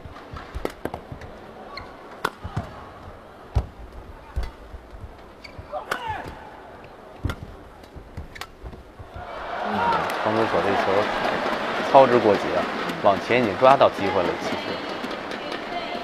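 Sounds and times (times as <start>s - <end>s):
shoes squeaking on court floor: 0.0s - 9.4s
crowd noise hum: 0.0s - 16.0s
racket striking shuttlecock: 1.8s - 2.8s, 5.4s - 6.5s, 7.2s - 9.3s.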